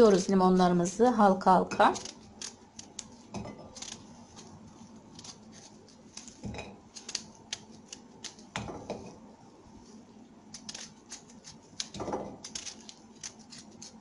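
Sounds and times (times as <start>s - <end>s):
knife slicing lemon: 1.7s - 4.5s.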